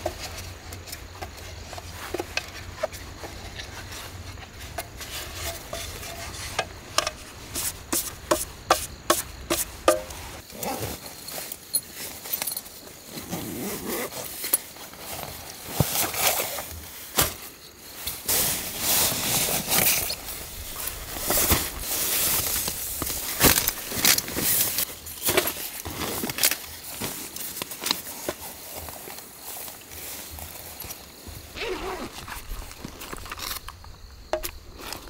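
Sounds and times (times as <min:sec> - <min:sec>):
nylon fabric rustling: 0:09.9 - 0:16.7, 0:29.6 - 0:33.2
zipper: 0:10.5 - 0:11.1, 0:13.2 - 0:14.3, 0:31.6 - 0:32.5.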